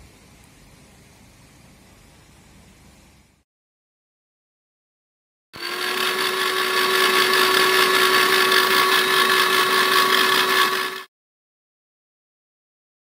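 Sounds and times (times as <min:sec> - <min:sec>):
electric hand blender whining: 0:05.6 - 0:11.1.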